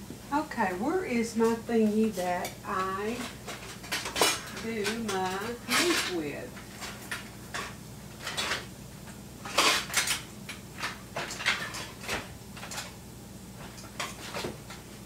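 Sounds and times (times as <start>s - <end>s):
kitchen utensils clattering: 2.4s - 8.7s, 9.4s - 13.0s.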